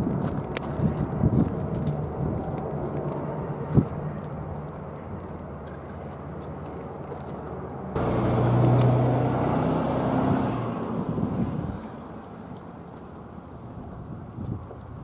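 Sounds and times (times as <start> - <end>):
vehicle engine hum: 0.0 - 15.0.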